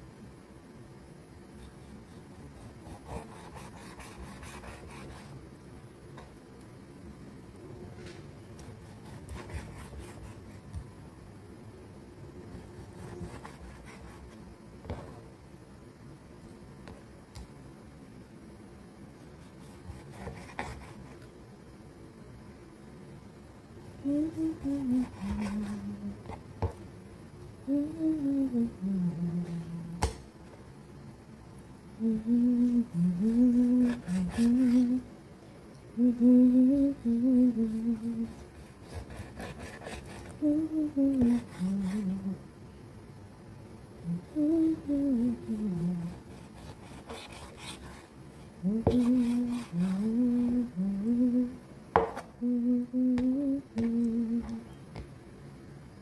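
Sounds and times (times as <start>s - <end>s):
person humming: 24.0s - 26.4s, 27.6s - 30.1s, 32.0s - 35.1s, 36.0s - 42.4s, 44.0s - 46.5s, 48.6s - 51.6s, 52.4s - 54.8s
knife knocking on chopping board: 52.0s - 52.2s.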